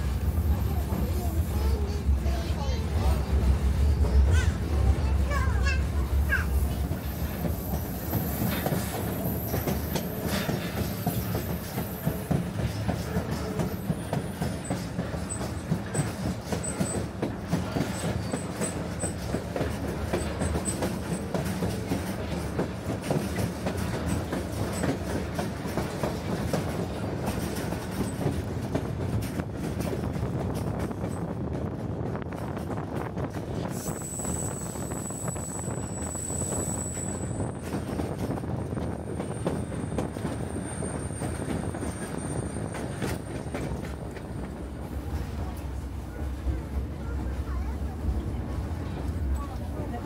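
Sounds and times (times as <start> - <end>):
train rumbling on track: 0.0 - 50.0
wheels clicking over rail joints: 4.0 - 33.6.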